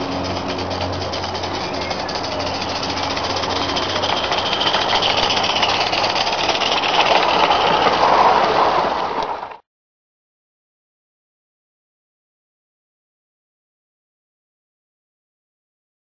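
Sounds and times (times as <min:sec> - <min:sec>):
steam locomotive exhaust beat: 0:00.0 - 0:08.9.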